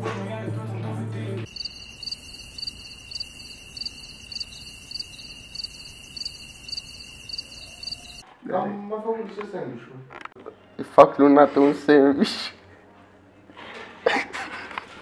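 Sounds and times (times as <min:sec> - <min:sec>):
insects chirping: 0:01.5 - 0:08.2.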